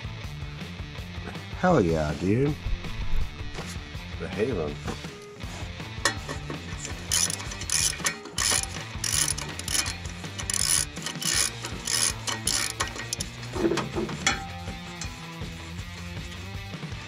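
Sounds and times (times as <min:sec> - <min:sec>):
ratchet wrench clicking: 0:06.1 - 0:16.4
sharp metal knock: 0:13.8 - 0:15.2.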